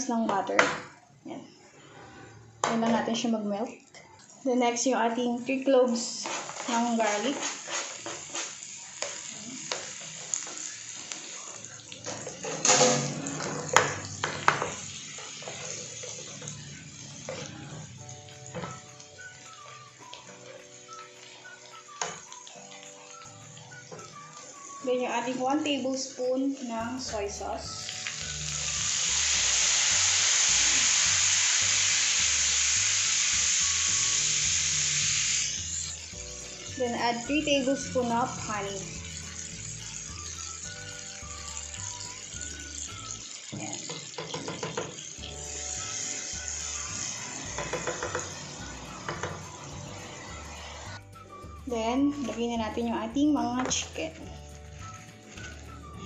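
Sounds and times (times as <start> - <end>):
butter and garlic sizzling: 2.6 - 56.0
spatula scraping and tapping pan: 6.1 - 10.6, 12.0 - 16.3, 43.5 - 45.2, 47.5 - 48.4.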